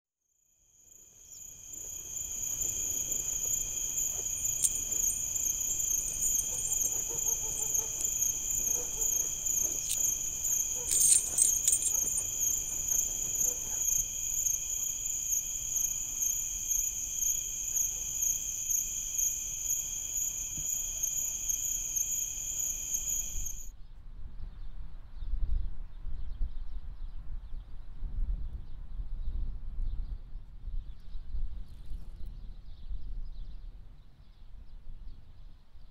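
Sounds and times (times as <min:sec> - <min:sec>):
chorus of shrill insects: 0:00.7 - 0:23.7.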